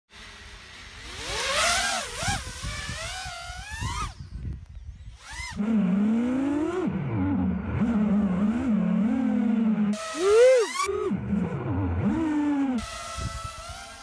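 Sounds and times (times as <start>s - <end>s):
quadcopter motors whining: 0.2s - 14.0s.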